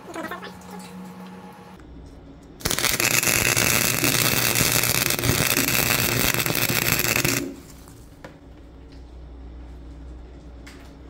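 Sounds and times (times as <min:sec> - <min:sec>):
welding arc crackling: 0:02.6 - 0:08.1.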